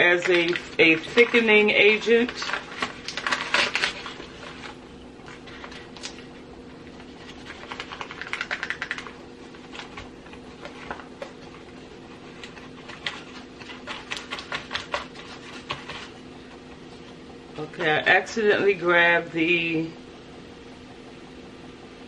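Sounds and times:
low steady hum: 0.0 - 22.0
plastic spoons clicking and rustling: 0.1 - 4.7, 7.4 - 10.0.

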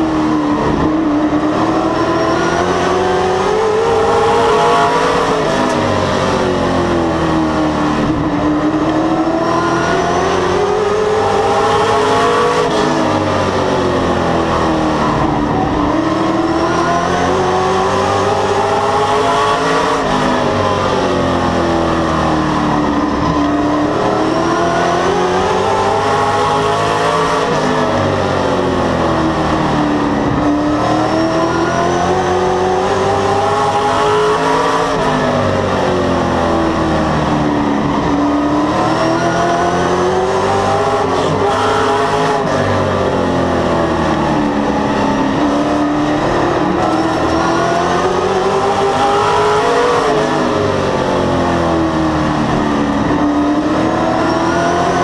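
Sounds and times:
race car engine accelerating: 0.0 - 55.0.

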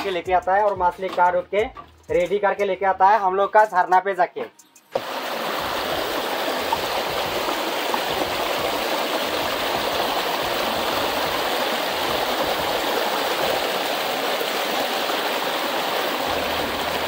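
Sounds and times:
stream flowing over rocks: 5.0 - 17.0.

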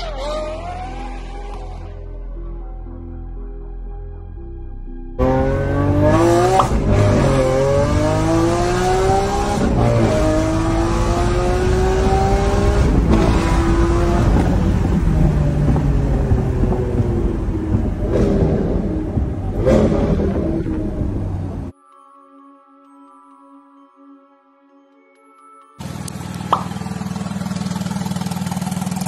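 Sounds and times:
car engine accelerating: 0.0 - 2.1, 5.2 - 21.7, 25.8 - 29.0.

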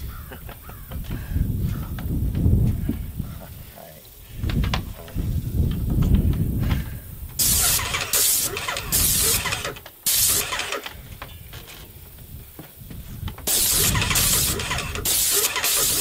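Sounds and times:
paint sprayer gun hissing: 7.4 - 11.0, 13.4 - 16.0.

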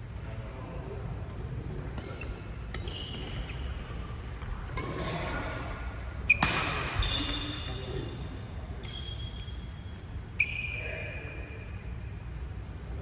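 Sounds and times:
shoes squeaking on floor: 2.1 - 5.2, 6.1 - 11.4.

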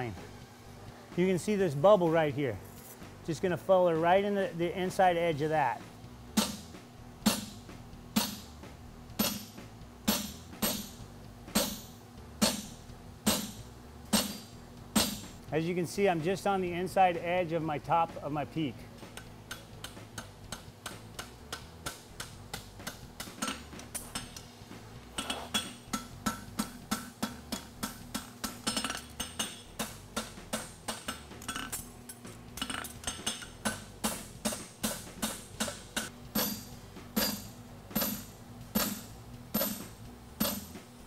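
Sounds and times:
hammer striking hot metal on anvil: 6.4 - 7.6, 8.2 - 8.6, 9.2 - 15.4, 25.2 - 31.7, 32.6 - 40.8.

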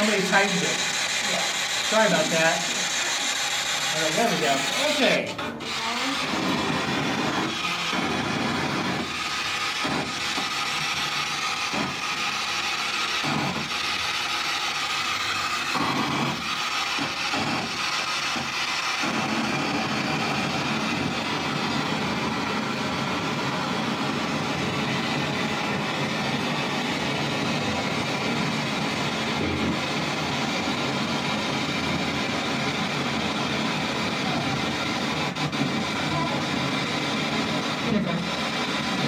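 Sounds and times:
radio static: 0.0 - 9.1, 37.7 - 38.3
chopped radio broadcast snatches: 0.0 - 39.0.

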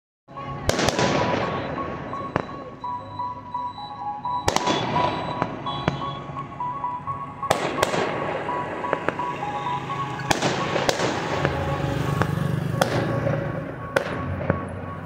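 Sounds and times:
firework bangs with crackle: 0.7 - 1.8, 4.5 - 6.1, 10.3 - 11.6.

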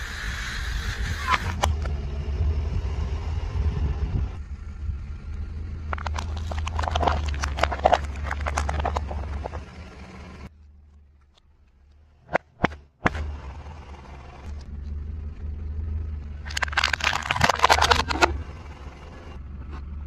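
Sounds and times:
car engine rumbling: 0.5 - 20.0
plastic bowls cracking under tyre: 5.9 - 9.7, 16.5 - 18.4.

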